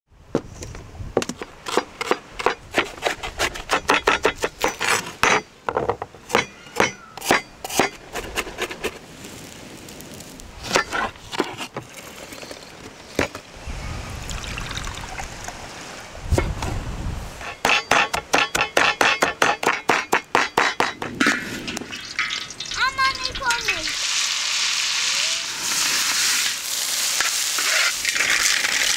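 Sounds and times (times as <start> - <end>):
mussel shells clinking: 21.7 - 24.0.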